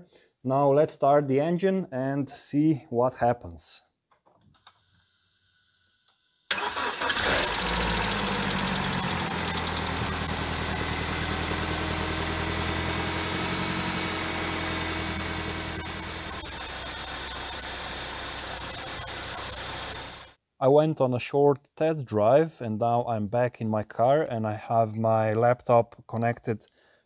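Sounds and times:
car engine cranking: 6.5 - 20.3
car engine idling: 6.5 - 20.3.

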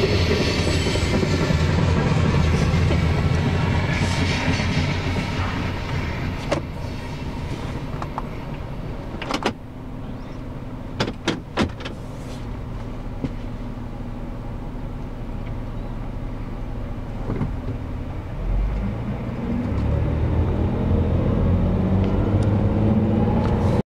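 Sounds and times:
freight train passing: 0.0 - 10.9
car engine idling: 0.0 - 18.4
deep engine rumble: 0.0 - 23.8.

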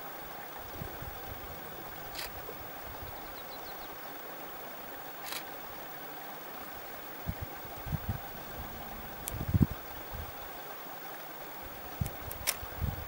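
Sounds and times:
outdoor background noise: 0.0 - 13.0
sharp click: 12.0 - 12.6.

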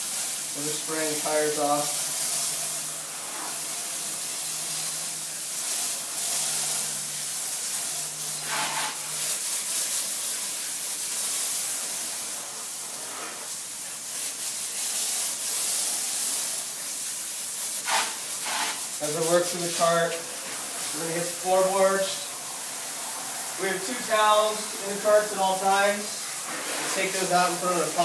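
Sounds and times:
hose spray hissing: 0.0 - 28.0
water splashing on wet floor: 14.0 - 28.0.

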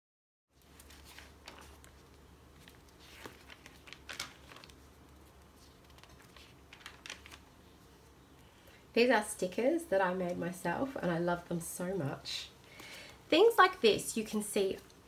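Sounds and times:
paper pages being turned: 0.5 - 8.6.

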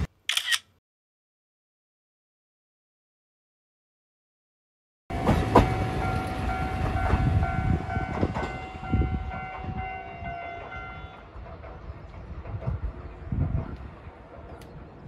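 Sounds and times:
train wheels rumbling on rails: 5.1 - 15.0.

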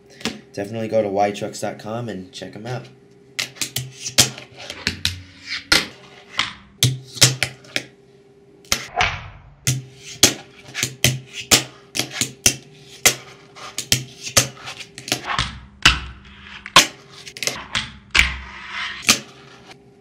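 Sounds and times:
fingerboard scrape: 18.4 - 19.8.

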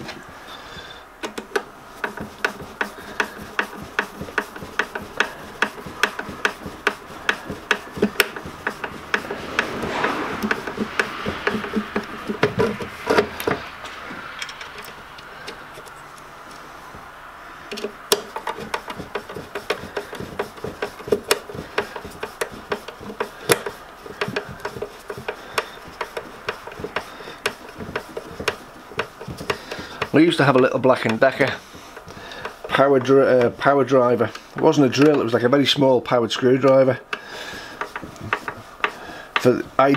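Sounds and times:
screw scraping in metal: 0.0 - 16.0, 17.6 - 35.4, 36.3 - 39.9
screwdriver clicking: 1.2 - 13.6, 17.7 - 30.2.

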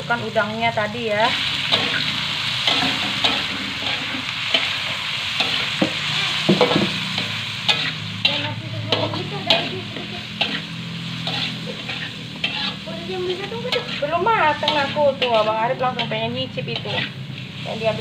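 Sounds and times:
shrimp sizzling in hot oil: 0.0 - 18.0
spatula scraping a wok: 1.2 - 18.0.

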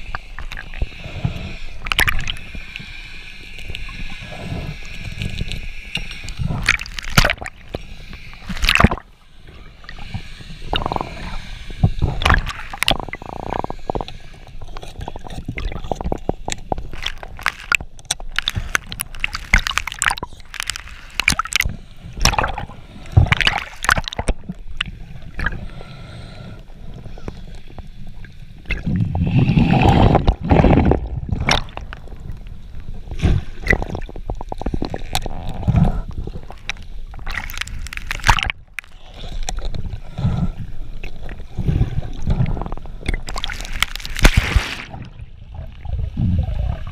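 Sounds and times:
splashing and bubbling: 0.0 - 25.8, 26.8 - 46.9
water gurgling underwater: 6.4 - 7.8, 8.5 - 9.1, 10.7 - 11.4, 12.0 - 14.0, 15.0 - 25.6, 28.6 - 38.8, 39.5 - 46.9.

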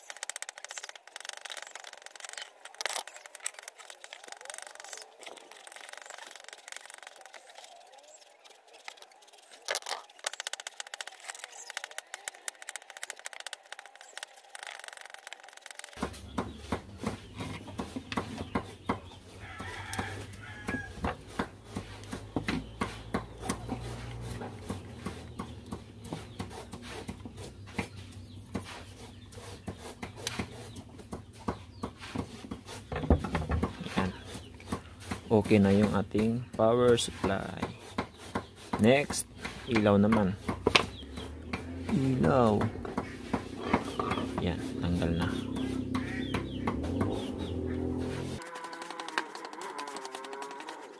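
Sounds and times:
chickens clucking: 16.0 - 50.9.

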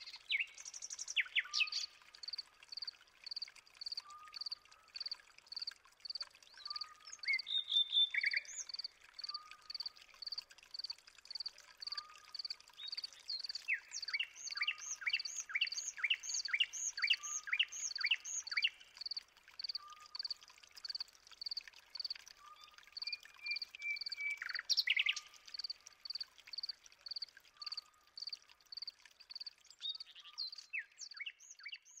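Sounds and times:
sweeping bird calls: 13.7 - 18.8.

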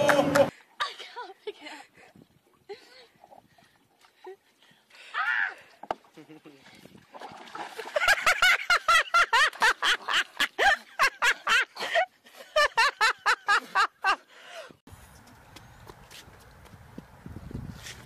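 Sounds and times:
person laughing hard: 6.2 - 6.6, 8.0 - 14.2.

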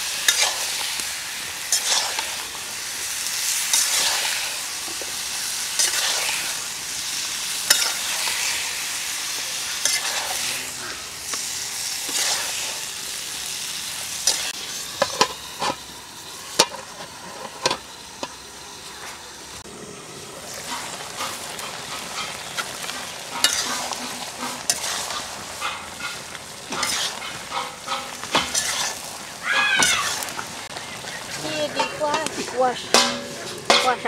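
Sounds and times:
food sizzling in a pan: 0.0 - 34.0
metal spatula scraping a pan: 0.1 - 2.6, 3.2 - 13.2, 20.5 - 30.3, 30.9 - 34.0.

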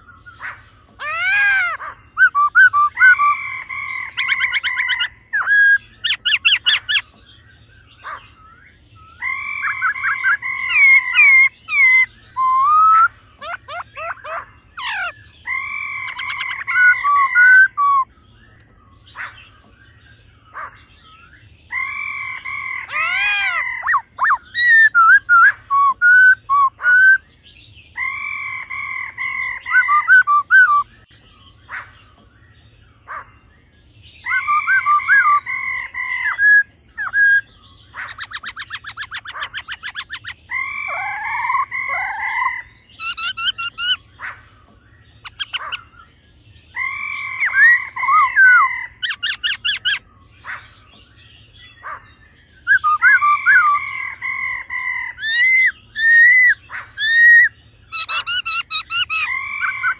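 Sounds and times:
bird singing whistled phrases: 0.9 - 7.2, 7.9 - 20.3, 22.6 - 27.3, 28.0 - 31.1, 34.2 - 35.6, 36.2 - 44.0, 46.8 - 50.1, 52.6 - 54.4, 55.0 - 59.9.

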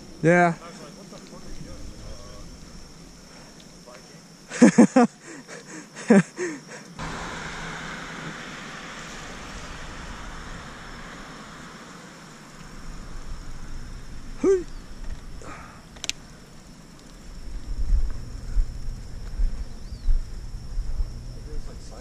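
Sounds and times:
tyre hiss on wet pavement: 0.0 - 22.0
low wind rumble: 1.4 - 3.3, 7.0 - 22.0
wind on microphone: 7.0 - 15.6, 17.3 - 21.8.

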